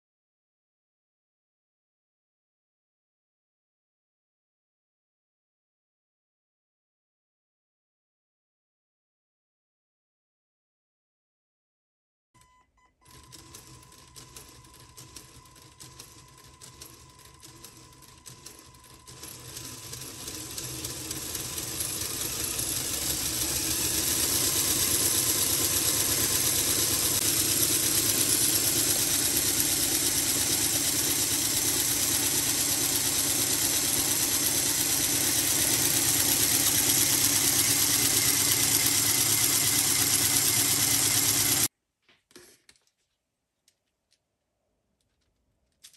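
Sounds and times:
plastic model engine clattering: 45.0 - 45.9.

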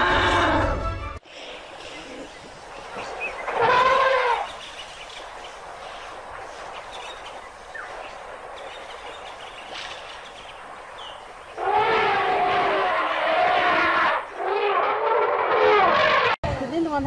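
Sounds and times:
elephant trumpeting: 0.0 - 0.8, 3.4 - 4.6, 11.5 - 16.4.

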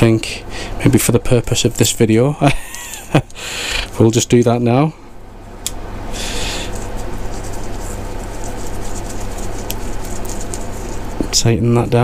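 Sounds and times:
steady low hum: 0.0 - 12.0
gloved hands rubbing and handling tool: 6.2 - 11.5.

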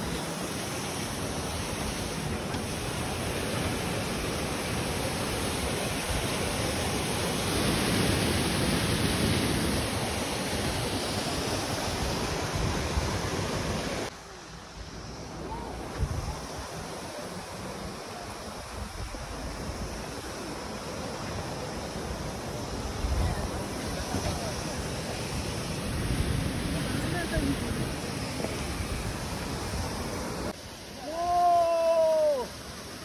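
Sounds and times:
water rushing over rocks: 0.0 - 33.0
wind on microphone: 15.4 - 17.3.

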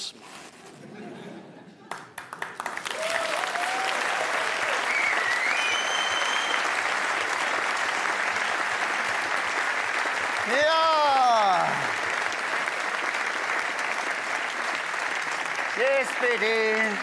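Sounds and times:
audience applauding: 1.8 - 17.0
shrill whistle from crowd: 4.8 - 6.8.

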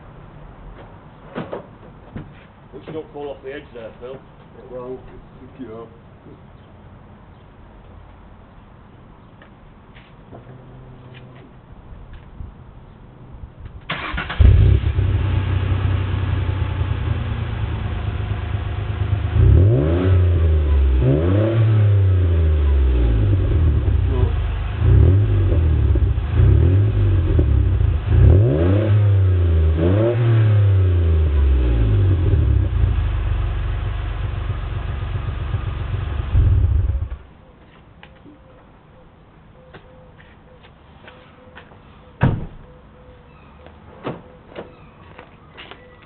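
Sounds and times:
car engine starting and revving: 13.9 - 37.2.

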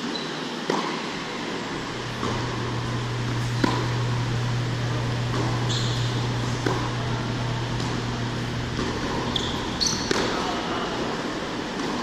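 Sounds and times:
ventilation hum: 0.0 - 12.0
racket hitting ball: 2.0 - 4.2, 5.1 - 10.8, 11.7 - 12.0
brief high squeak: 5.7 - 6.1, 9.3 - 10.1.

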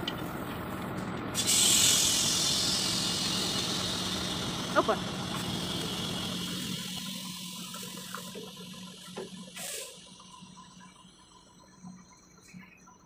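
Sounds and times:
compressed air hissing: 1.4 - 10.4.

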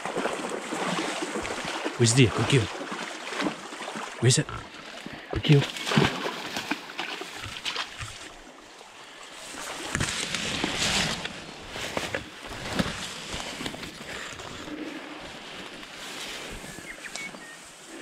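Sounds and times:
tall grass swishing and rustling: 9.4 - 18.0.

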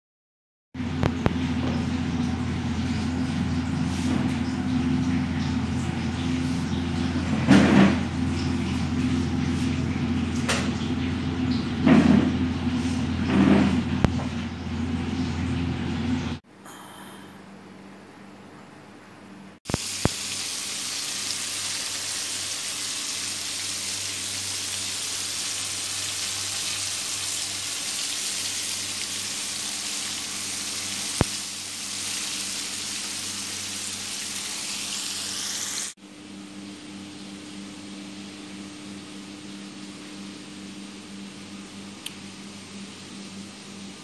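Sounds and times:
chicken sizzling in hot oil: 19.7 - 36.0.

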